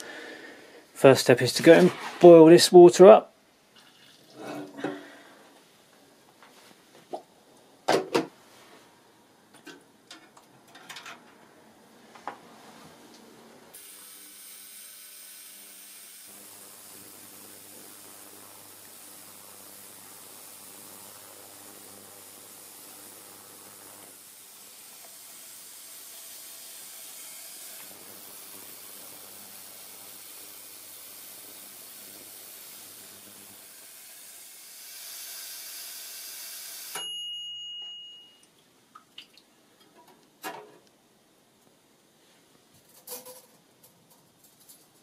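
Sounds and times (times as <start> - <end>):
ultrasonic cleaner fizzing hiss: 13.7 - 37.0.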